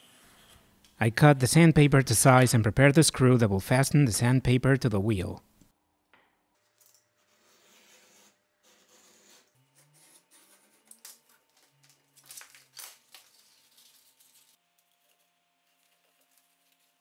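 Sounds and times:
knife cutting sandpaper: 0:07.2 - 0:11.0
paper strip crackling: 0:10.4 - 0:17.0.

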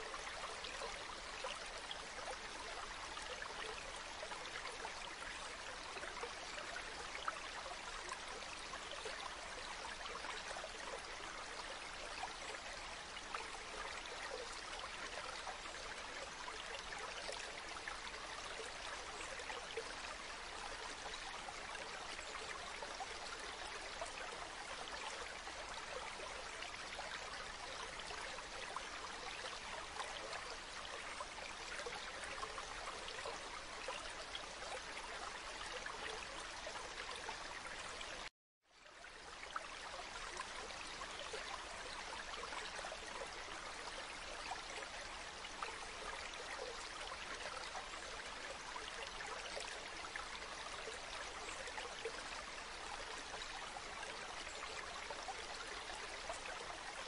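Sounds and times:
stream babbling over pebbles: 0:00.0 - 0:57.0.

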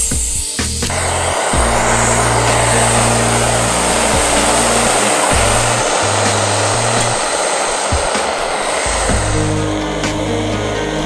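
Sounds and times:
music with low synth bass: 0:00.0 - 0:07.2
gas stove rushing hiss: 0:00.0 - 0:11.0.

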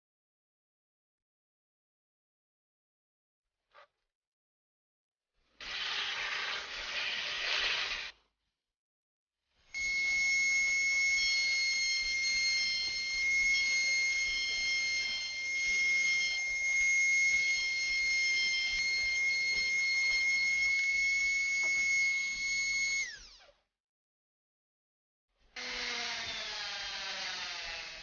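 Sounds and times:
rotary tool grinding bone: 0:09.8 - 0:21.9.

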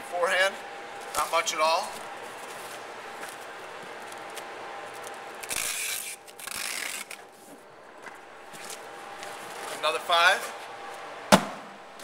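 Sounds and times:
hands rubbing over tape: 0:01.0 - 0:07.6
packing tape rasping: 0:04.0 - 0:07.6.

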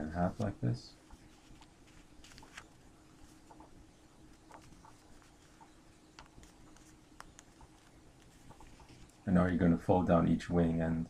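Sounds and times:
paper being folded and creased: 0:00.2 - 0:09.2.

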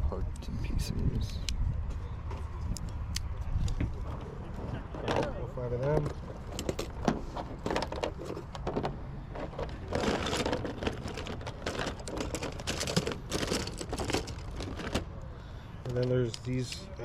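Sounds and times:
handling rustle: 0:03.6 - 0:15.2.

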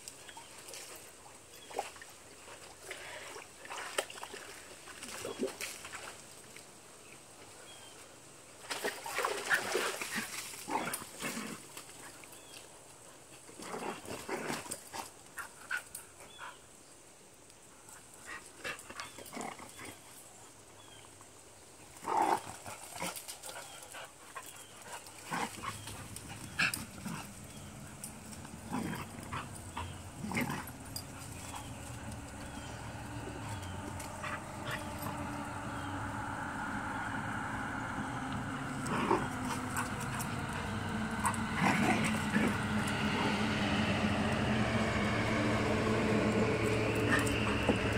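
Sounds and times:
dogs play-fighting: 0:08.7 - 0:12.6, 0:13.3 - 0:16.6, 0:17.9 - 0:20.2, 0:21.9 - 0:47.9
low hum: 0:25.5 - 0:47.9.

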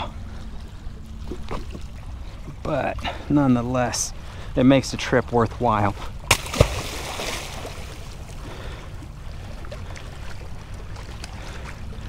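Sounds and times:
low wash of water: 0:00.0 - 0:12.0
sharp slap on water: 0:06.3 - 0:07.3
fish splashing at the surface: 0:06.3 - 0:08.2.

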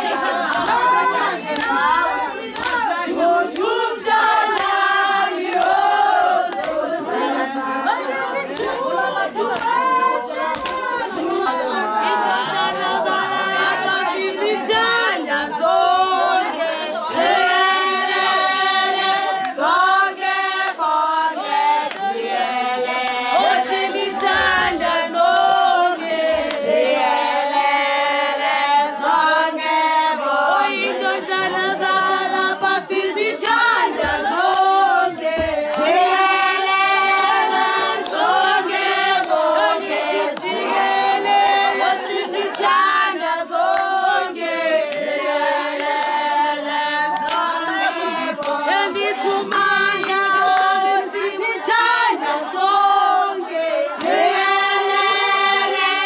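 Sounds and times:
women singing unaccompanied: 0:00.0 - 0:56.0
sharp hand claps: 0:00.4 - 0:03.8, 0:04.5 - 0:05.9, 0:06.5 - 0:06.9, 0:08.4 - 0:08.8, 0:09.5 - 0:11.2, 0:33.0 - 0:36.0, 0:42.4 - 0:42.9, 0:43.6 - 0:44.0, 0:47.1 - 0:50.8.

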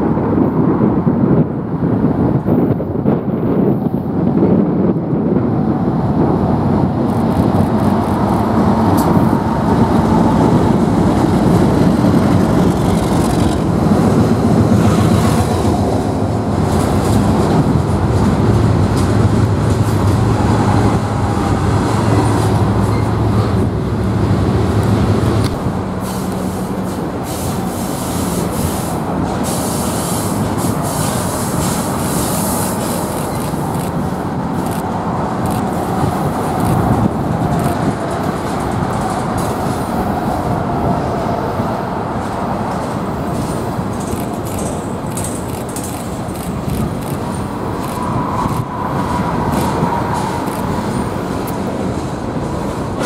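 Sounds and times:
diesel locomotive engines humming: 0:00.0 - 0:53.0
freight cars rumbling on rails: 0:00.0 - 0:53.0.

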